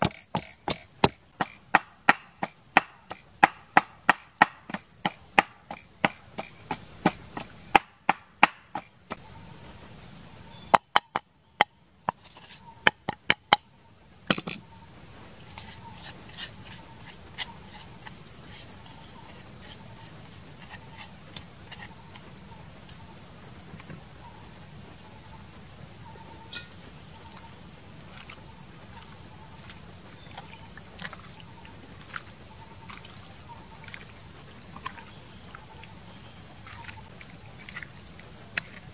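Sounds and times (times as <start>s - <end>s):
wooden pestle pounding in mortar: 0.0s - 8.9s, 10.8s - 11.3s, 12.9s - 13.6s
insects droning: 0.0s - 38.9s.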